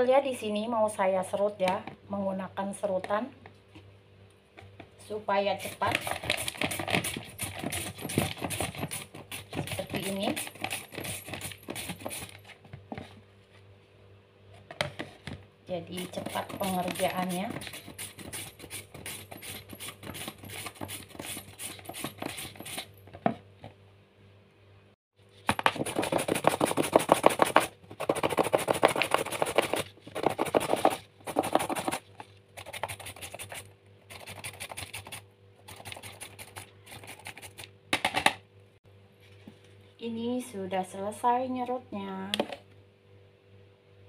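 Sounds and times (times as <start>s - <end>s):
carrot rasping on plastic grater: 5.6s - 12.4s, 16.0s - 22.9s, 25.7s - 32.0s, 32.6s - 37.7s.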